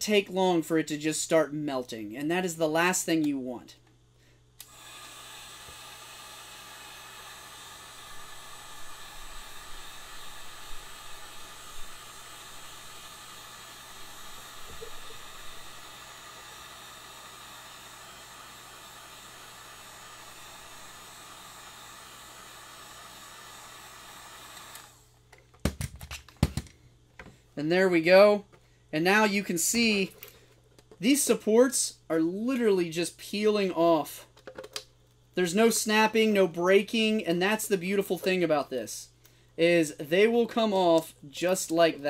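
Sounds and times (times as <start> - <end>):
heat gun blowing hiss: 4.6 - 25.1.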